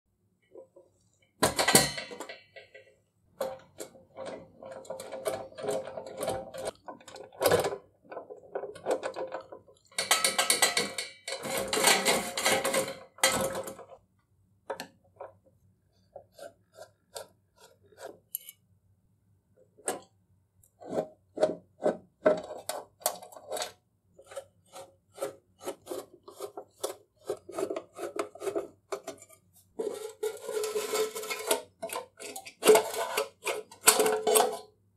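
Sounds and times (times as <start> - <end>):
metal rubbing and scraping: 23.4 - 34.6.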